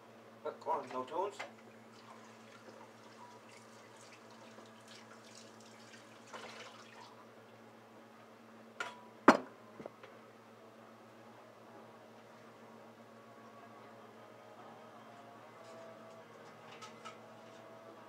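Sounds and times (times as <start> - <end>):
water trickling and splashing: 1.9 - 7.2.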